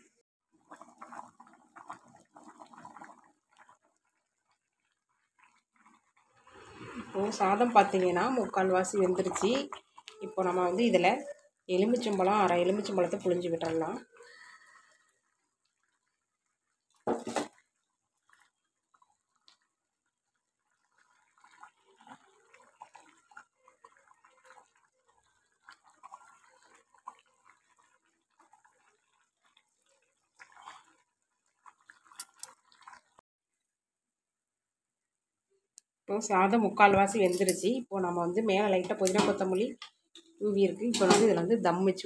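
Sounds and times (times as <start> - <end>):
rice crackling and bubbling: 0.0 - 33.2.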